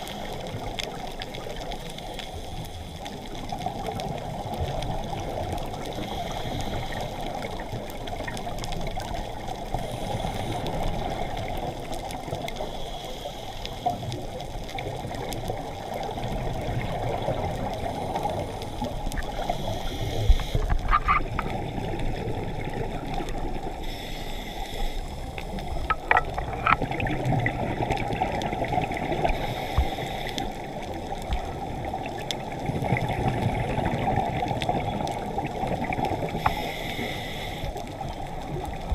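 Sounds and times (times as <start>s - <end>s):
muffled rushing water: 0.0s - 38.9s.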